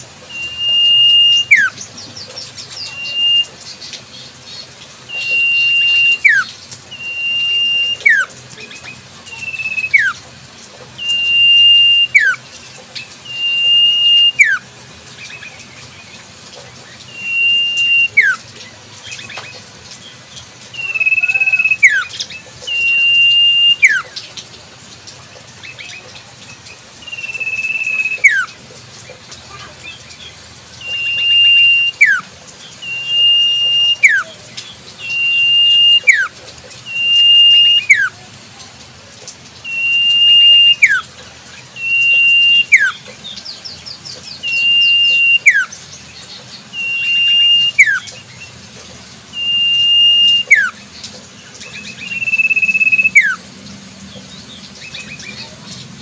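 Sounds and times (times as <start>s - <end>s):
bird whistling call: 0.2s - 3.7s, 5.1s - 10.2s, 11.0s - 12.4s, 13.2s - 14.7s, 17.0s - 18.5s, 20.7s - 24.2s, 27.0s - 28.6s, 30.8s - 38.2s, 39.6s - 41.1s, 41.7s - 43.1s, 44.3s - 45.8s, 46.7s - 48.6s, 49.3s - 50.8s, 51.6s - 53.4s.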